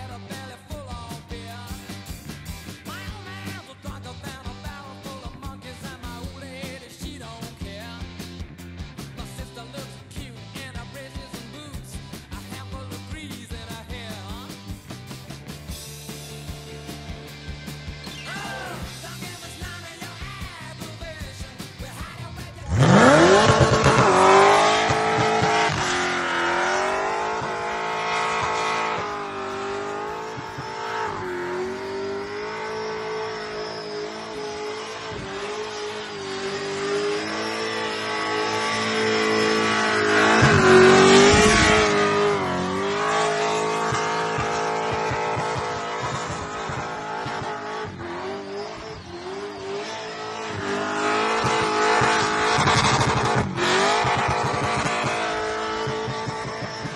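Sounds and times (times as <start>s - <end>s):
car engine at high revs: 22.5s - 56.9s.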